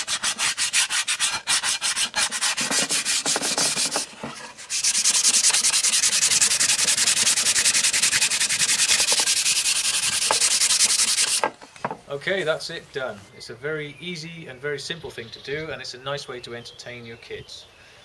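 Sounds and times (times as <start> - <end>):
sandpaper sanding plywood: 0.0 - 11.5.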